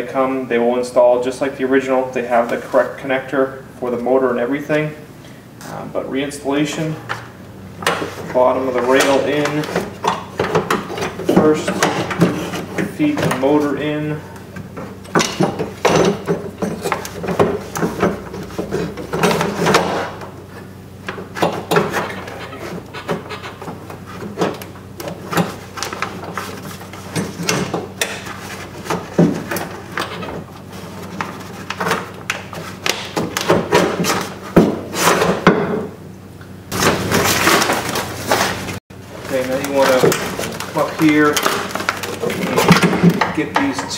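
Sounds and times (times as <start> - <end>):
plastic sheet rustling: 36.7 - 43.1.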